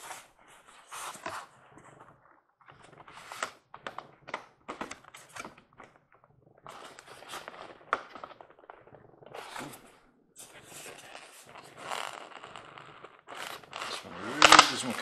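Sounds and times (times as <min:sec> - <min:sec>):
packaging rustling and scraping: 0:13.3 - 0:15.0.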